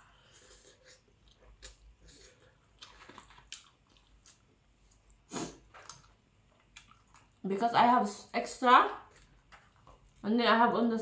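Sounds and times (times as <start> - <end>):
person chewing: 0.1 - 7.4, 9.1 - 10.2.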